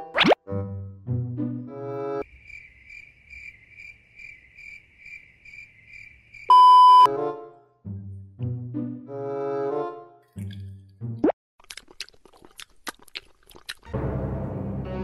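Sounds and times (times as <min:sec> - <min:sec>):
cricket chirping: 0:02.2 - 0:07.1
censor beep: 0:06.5 - 0:07.1.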